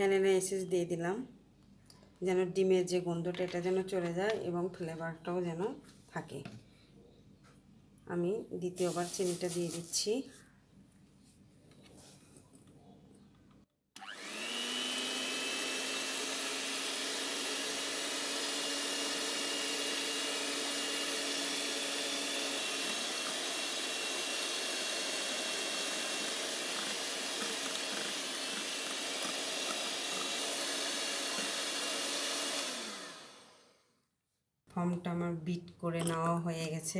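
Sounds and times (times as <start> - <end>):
electric hand mixer whining: 14.0 - 33.9
beaters whisking in glass bowl: 17.4 - 32.7.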